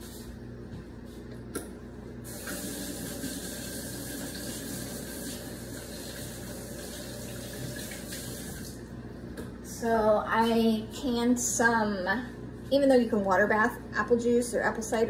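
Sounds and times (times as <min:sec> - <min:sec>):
tap water running: 0:02.3 - 0:08.9.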